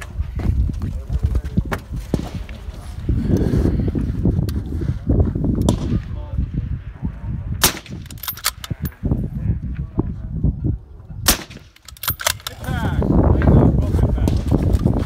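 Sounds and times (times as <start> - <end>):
rifle shots: 7.6 - 8.8, 11.2 - 12.4.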